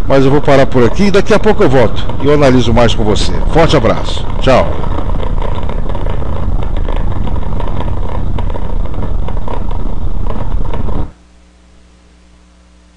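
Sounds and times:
car engine running: 0.0s - 11.1s
tyres rumbling over cobblestones: 0.0s - 11.1s
faint low hum: 0.0s - 12.9s
short knocks and rattles: 1.8s - 11.1s.

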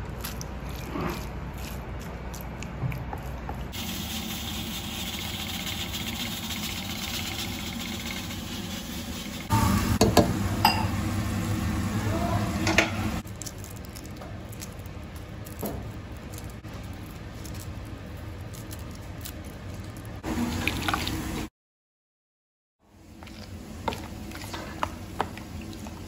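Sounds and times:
onions sizzling in a pot: 3.7s - 13.2s.

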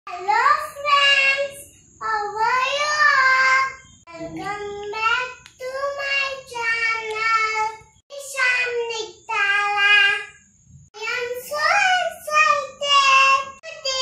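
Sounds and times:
girl singing unaccompanied: 0.1s - 14.0s.

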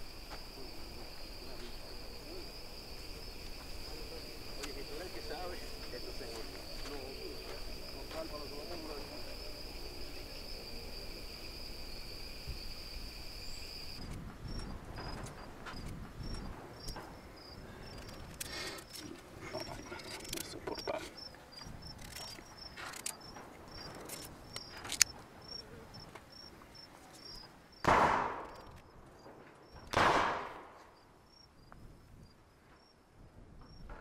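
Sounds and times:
insect chirping: 0.0s - 33.1s, 33.7s - 33.9s
light rustling and clicks: 18.0s - 25.2s.

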